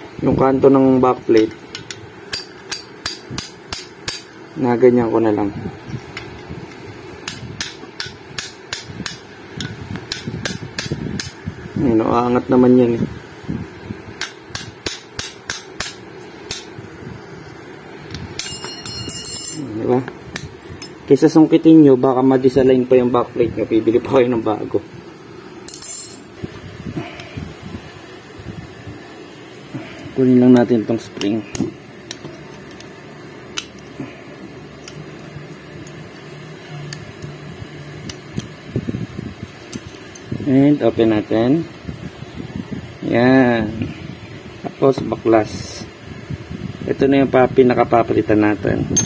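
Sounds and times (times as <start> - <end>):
steady low hum: 0.0 - 49.0
steel tool tapping metal: 1.4 - 4.3, 7.2 - 11.3, 14.2 - 16.7, 18.1 - 19.6
metallic jingle: 18.4 - 19.8, 25.7 - 26.3.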